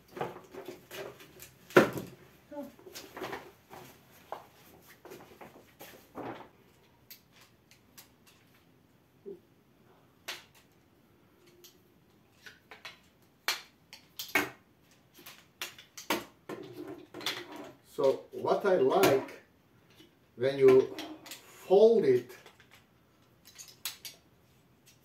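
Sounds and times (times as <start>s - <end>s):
chair poles clacking and clicking: 12.4s - 18.2s, 18.9s - 21.6s, 22.2s - 25.0s.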